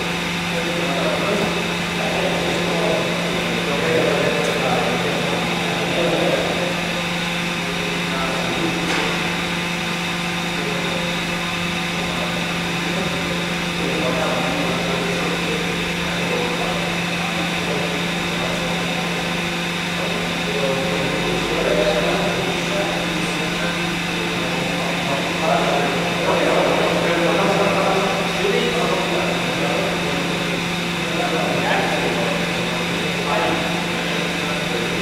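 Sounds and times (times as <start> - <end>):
faint voices talking: 0.0 - 35.0
machinery humming: 0.0 - 35.0.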